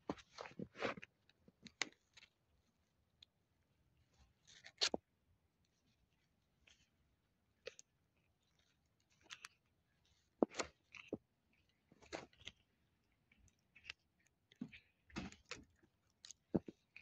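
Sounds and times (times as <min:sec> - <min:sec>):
cat chewing bone crunches: 0:07.6 - 0:17.0.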